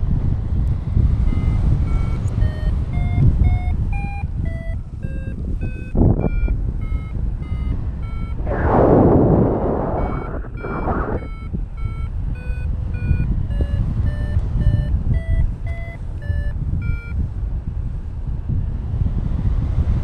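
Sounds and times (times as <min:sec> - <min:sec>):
wind rush on microphone: 0:00.0 - 0:20.0
variometer beeping: 0:01.3 - 0:17.2.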